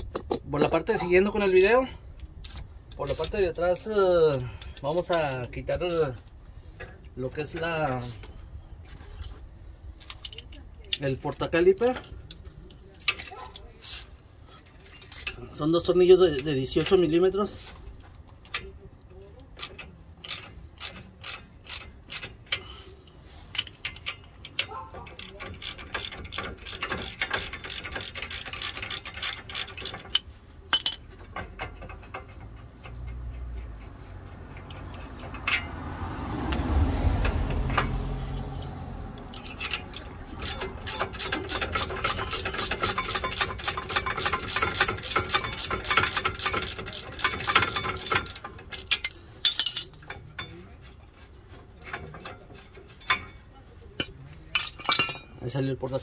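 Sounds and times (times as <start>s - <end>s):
socket ratchet clicking: 19.6s - 22.6s, 25.2s - 31.0s, 37.8s - 50.0s.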